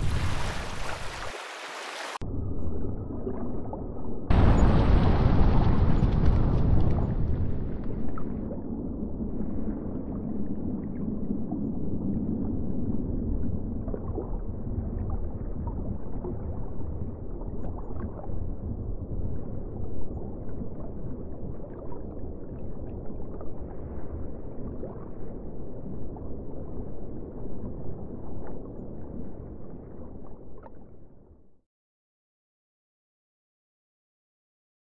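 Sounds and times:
underwater low rumble: 0:02.2 - 0:31.6.

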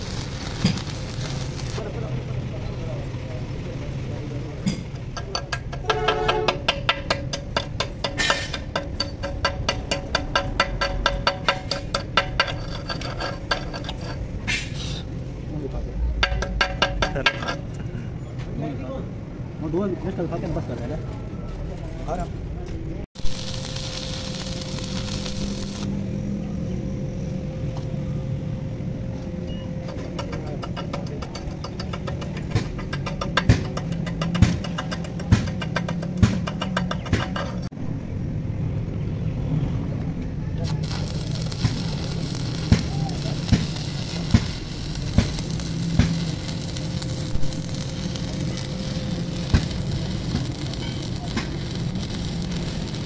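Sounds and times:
crackling hiss: 0:00.0 - 0:01.8, 0:23.2 - 0:26.1, 0:40.6 - 0:53.0
machinery humming: 0:00.0 - 0:14.4, 0:23.2 - 0:36.9, 0:40.3 - 0:53.0
machine humming: 0:23.2 - 0:29.9, 0:40.6 - 0:53.0.

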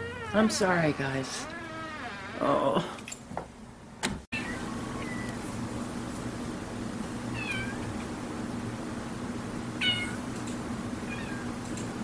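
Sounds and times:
cat meowing: 0:00.0 - 0:01.6, 0:07.4 - 0:07.8, 0:09.8 - 0:10.2, 0:11.1 - 0:11.5.

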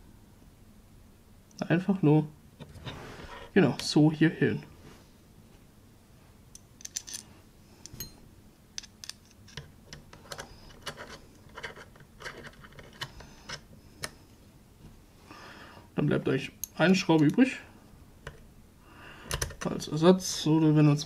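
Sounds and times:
small metal parts clicking: 0:06.5 - 0:08.2, 0:08.8 - 0:14.1.

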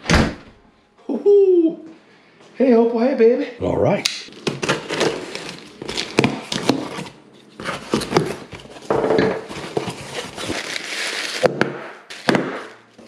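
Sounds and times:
plastic wrap crinkling: 0:04.3 - 0:13.0.

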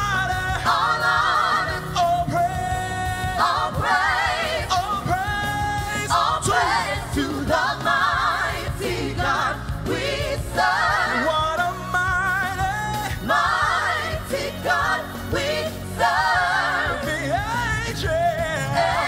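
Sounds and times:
backing singers: 0:00.1 - 0:19.0.

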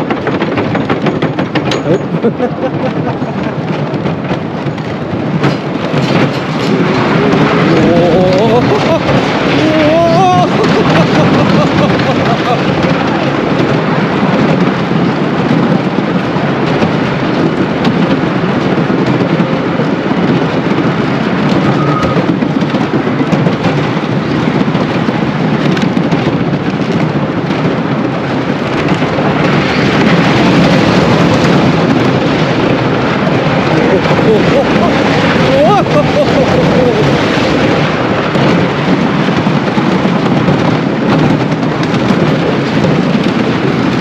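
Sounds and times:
roller coaster wheels rumbling: 0:00.0 - 0:44.0.

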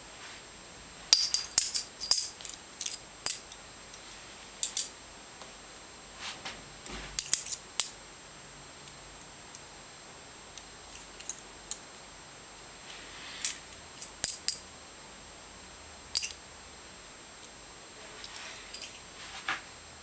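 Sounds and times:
metal coins clinking: 0:01.1 - 0:03.5, 0:16.2 - 0:16.4, 0:18.3 - 0:19.0.

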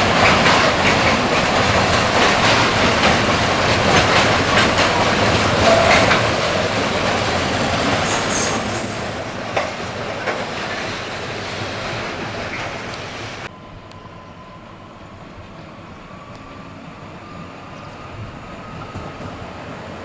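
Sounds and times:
wheels clattering over rail joints: 0:00.0 - 0:11.1
high wheel squeal: 0:07.8 - 0:11.2.

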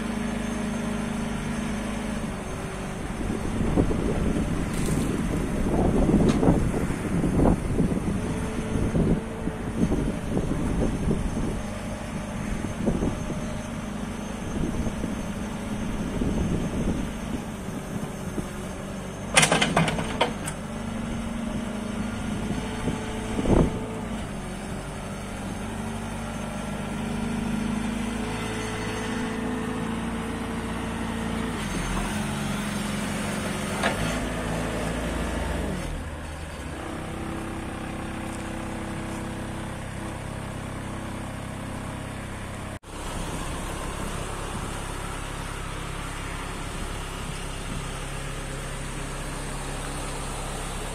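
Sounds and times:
diesel engine idling: 0:36.0 - 0:50.9.

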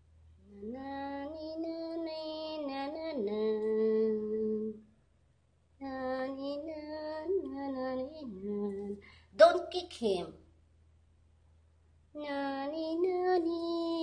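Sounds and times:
woman singing a lullaby: 0:00.4 - 0:04.9, 0:05.8 - 0:10.2, 0:12.1 - 0:14.0.

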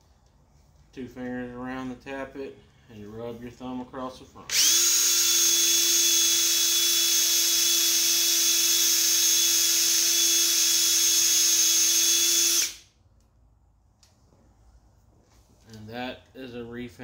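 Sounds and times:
cordless drill whining: 0:04.5 - 0:12.9.

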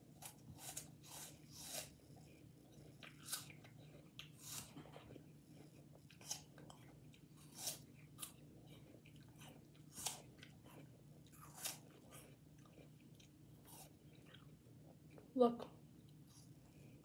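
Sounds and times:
apple crunching bites: 0:03.0 - 0:04.8, 0:11.3 - 0:12.8.

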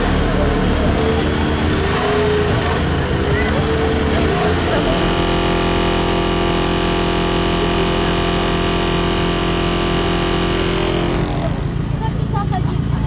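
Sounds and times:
distorted loud bass tone: 0:00.0 - 0:12.5.

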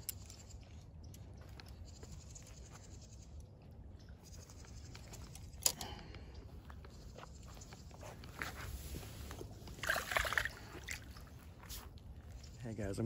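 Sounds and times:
rustling over dry grass and straw: 0:07.6 - 0:12.6.

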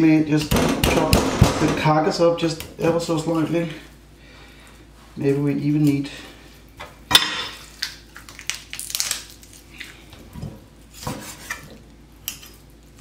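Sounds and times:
bone crunching: 0:07.6 - 0:10.0.

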